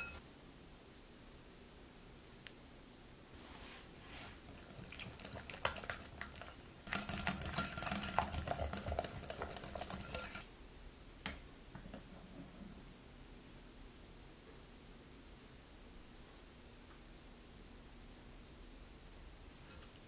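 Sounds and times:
rapid clicking and scraping in bowl: 4.3s - 10.5s
utensil clinking glass bowl: 4.8s - 10.4s.

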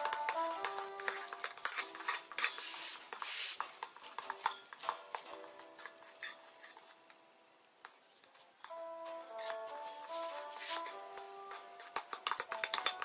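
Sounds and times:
metal spoon scraping a bowl: 0.0s - 7.0s, 8.6s - 13.0s
faint background music: 0.0s - 13.0s
spoon clinking on bowl: 3.9s - 5.9s, 11.8s - 13.0s.

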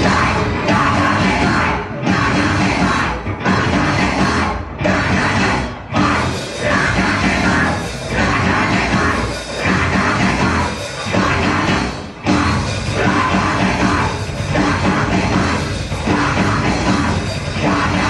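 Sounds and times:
live rock band playing: 0.0s - 18.0s.

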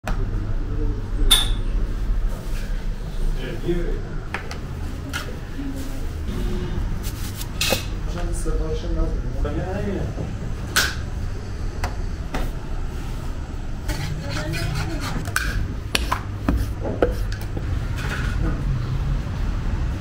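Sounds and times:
steady low hum: 0.1s - 20.0s.

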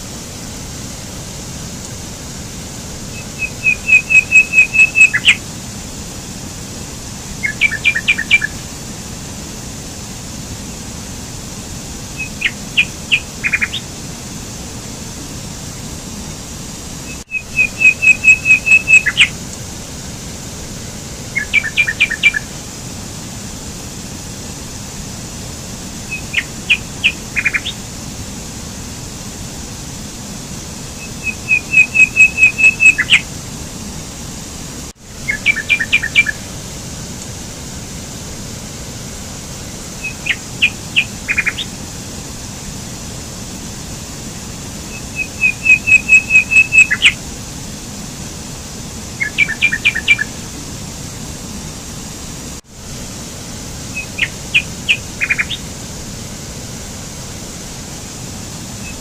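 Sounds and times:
songbird chirping: 3.1s - 5.4s, 7.4s - 8.6s, 12.2s - 13.9s, 17.1s - 19.3s, 21.3s - 22.5s, 26.1s - 27.8s, 31.0s - 33.2s, 35.2s - 36.5s, 40.0s - 41.7s, 44.9s - 47.2s, 49.2s - 50.3s, 53.9s - 55.6s.

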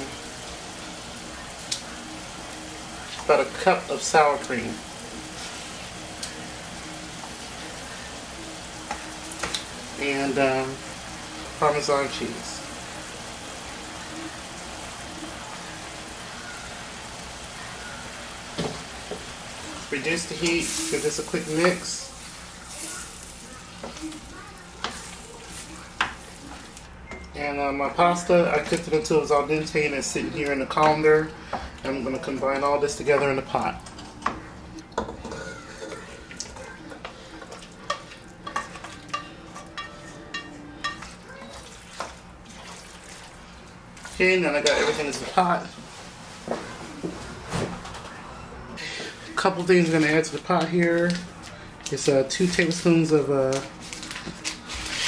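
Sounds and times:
sauce bubbling and sizzling: 0.0s - 47.3s
utensil scraping skillet: 18.6s - 26.8s, 31.9s - 43.0s, 44.0s - 46.8s, 53.8s - 55.0s
utensil clinking on metal pans: 28.2s - 42.9s, 44.0s - 45.6s
low wet stirring: 28.6s - 47.2s.

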